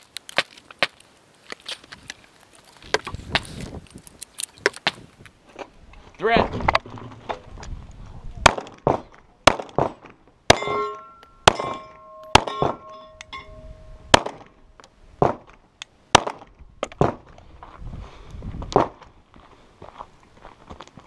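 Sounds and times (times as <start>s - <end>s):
pistol shots: 8.4s - 12.9s, 14.1s - 14.5s
steel targets ringing: 10.5s - 14.4s.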